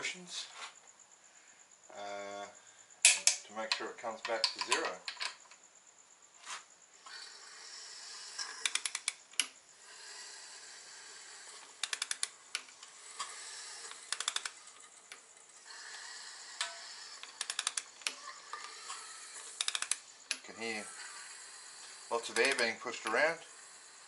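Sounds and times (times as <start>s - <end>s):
socket ratchet clicking: 8.6s - 9.6s, 11.8s - 12.7s, 13.9s - 15.2s, 16.6s - 18.8s, 19.6s - 20.5s, 22.3s - 22.8s.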